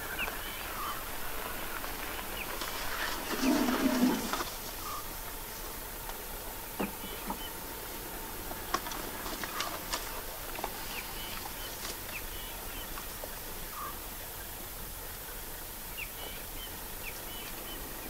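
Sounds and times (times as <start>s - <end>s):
dry grass crackling underfoot: 0.0s - 5.8s, 8.6s - 13.4s
bird chirps: 3.2s - 5.1s.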